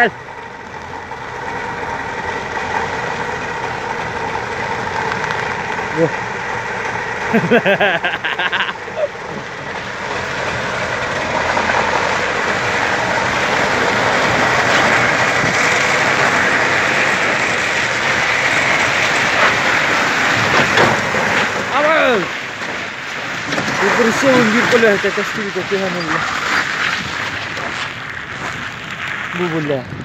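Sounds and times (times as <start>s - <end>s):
heavy truck running: 0.0s - 30.0s
person speaking: 23.8s - 26.3s.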